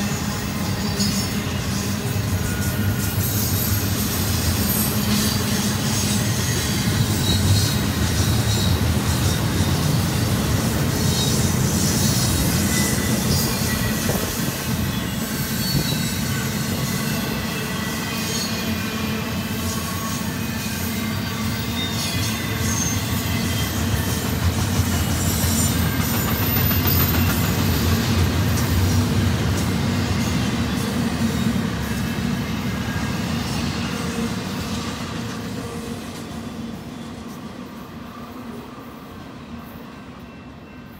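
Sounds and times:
high wheel squeals: 0.0s - 10.0s, 10.8s - 28.8s
freight train wheels rumbling: 0.0s - 40.9s.

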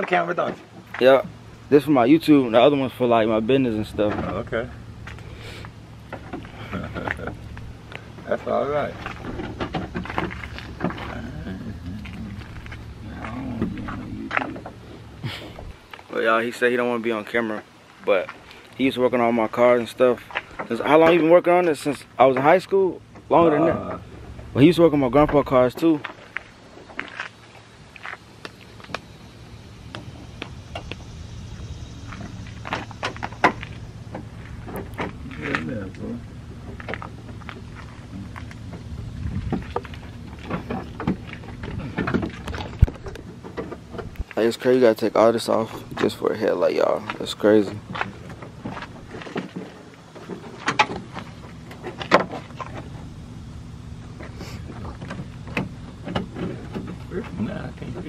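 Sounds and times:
low steady hum: 0.0s - 58.0s
sharp clicks and knocks: 9.0s - 11.1s, 32.1s - 44.4s, 47.0s - 53.0s, 54.2s - 57.3s.

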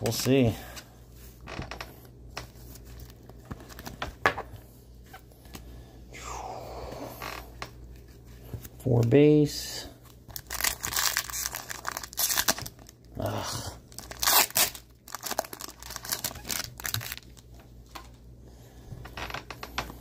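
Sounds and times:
cards rustling: 2.3s - 4.2s, 10.1s - 12.9s
foil wrapper tearing and crinkling: 10.3s - 13.1s, 13.9s - 17.4s.

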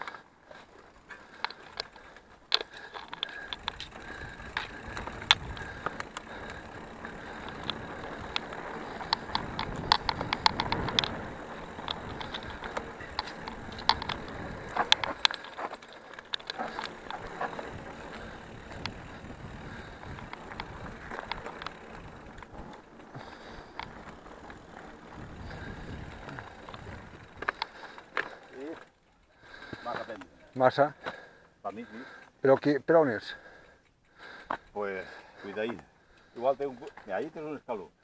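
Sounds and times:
bike tyre noise on dirt: 0.0s - 33.2s
bike clicks and rattles: 0.0s - 37.7s.

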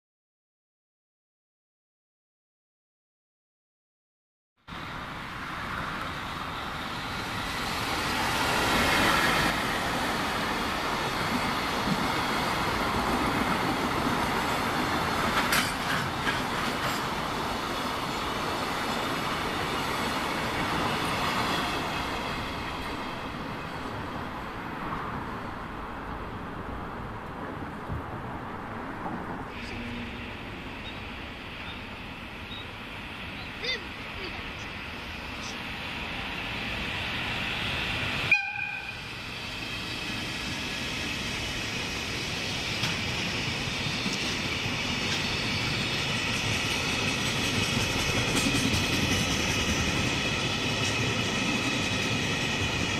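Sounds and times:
freight train passing: 4.7s - 52.9s
wheels clacking over rail joints: 7.8s - 23.0s, 42.7s - 52.9s.

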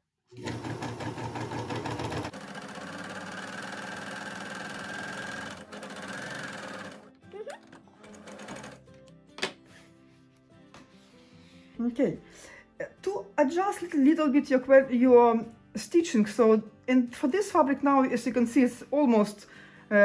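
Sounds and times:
overlock sewing machine running: 0.3s - 8.8s.

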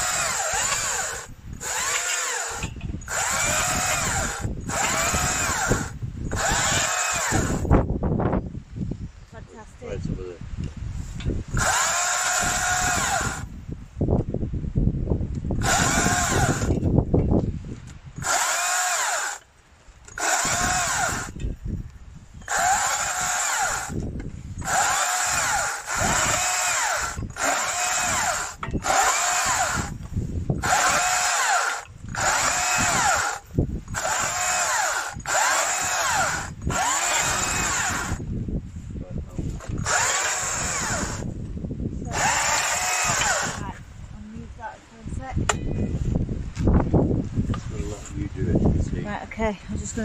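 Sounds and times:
battery chainsaw cutting wood: 0.0s - 7.9s, 11.5s - 13.5s, 15.6s - 16.9s, 18.2s - 21.4s, 22.4s - 38.3s, 39.6s - 41.3s, 42.0s - 43.8s.

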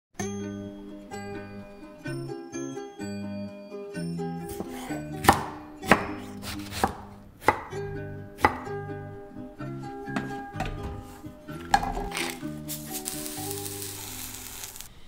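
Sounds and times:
plucked-string background music: 0.2s - 14.8s
knife chopping on wooden board: 4.5s - 7.8s, 8.4s - 8.8s.

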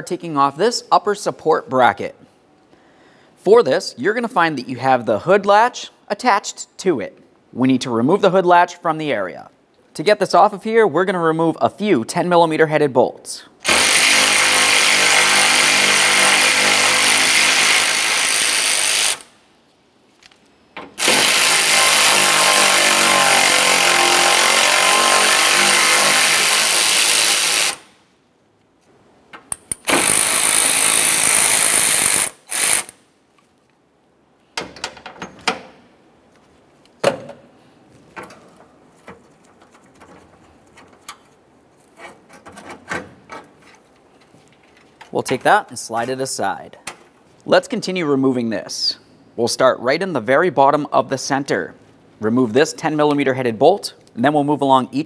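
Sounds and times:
electric ratchet motor whining: 21.0s - 27.9s, 29.9s - 33.0s.

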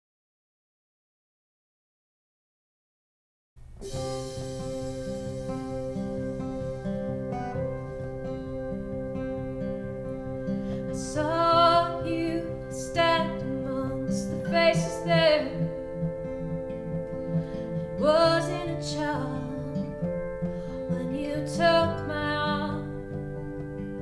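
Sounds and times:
acoustic guitars: 3.6s - 24.0s
keyboard chords: 3.8s - 24.0s
woman singing: 10.8s - 15.9s, 17.9s - 23.4s.

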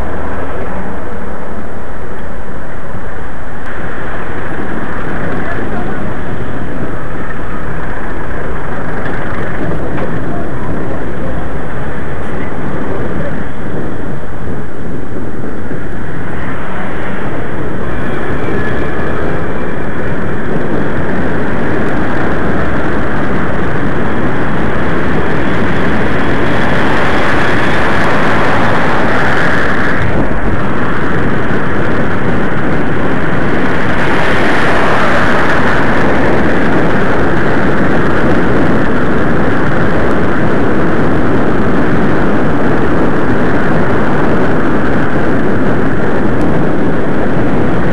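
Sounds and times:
city traffic road noise: 0.0s - 47.9s
wind on microphone: 0.0s - 47.9s.

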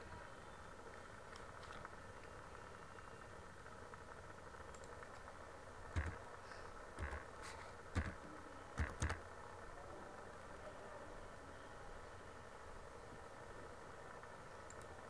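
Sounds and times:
steady low hum: 0.0s - 15.0s
computer mouse clicks: 4.7s - 5.3s, 5.9s - 6.2s, 7.0s - 7.3s, 7.9s - 8.2s, 8.8s - 9.2s, 14.6s - 14.9s.

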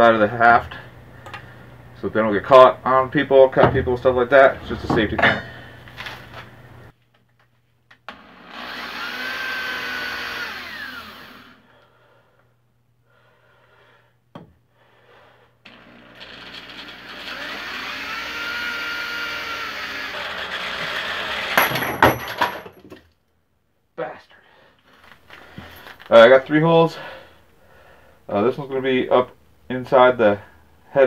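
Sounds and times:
electric drill boring through steel: 8.1s - 11.6s, 15.7s - 21.6s.

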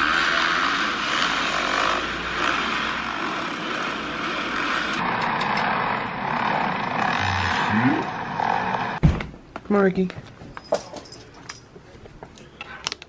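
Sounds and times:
dirt bike engines droning: 0.0s - 9.0s.

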